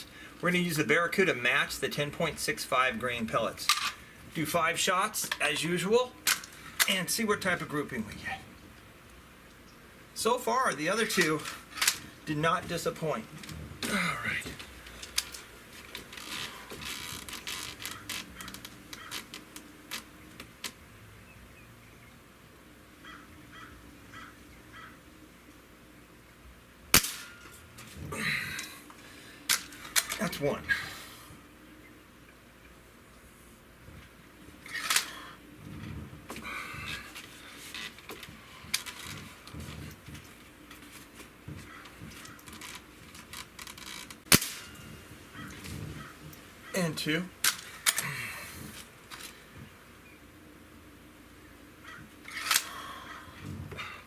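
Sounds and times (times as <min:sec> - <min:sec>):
air rifle handling clicks: 0:06.2 - 0:07.0, 0:11.1 - 0:12.1, 0:29.5 - 0:30.2, 0:34.7 - 0:35.2, 0:47.4 - 0:48.1, 0:52.2 - 0:52.8
bird calling faintly: 0:23.0 - 0:25.2, 0:41.5 - 0:42.9, 0:44.8 - 0:47.1, 0:51.4 - 0:54.0
air rifle shot: 0:26.9 - 0:27.4, 0:44.3 - 0:44.7.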